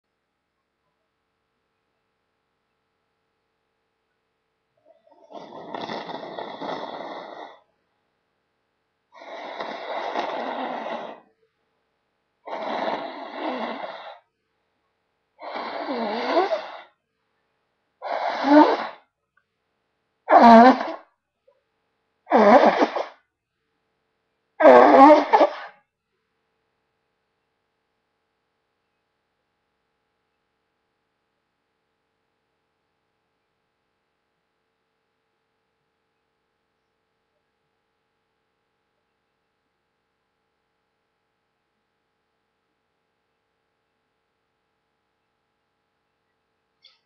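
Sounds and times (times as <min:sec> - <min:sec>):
person blowing nose: 0:05.3 - 0:07.6, 0:09.2 - 0:11.2, 0:12.5 - 0:14.2, 0:15.4 - 0:16.9, 0:18.0 - 0:19.1, 0:20.3 - 0:21.1, 0:22.3 - 0:23.2, 0:24.6 - 0:25.8.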